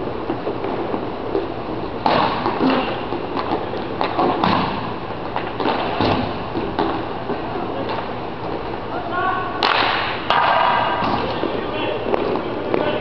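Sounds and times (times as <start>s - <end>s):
sticks clacking on puck and floor: 2.1s - 8.1s, 9.6s - 13.0s.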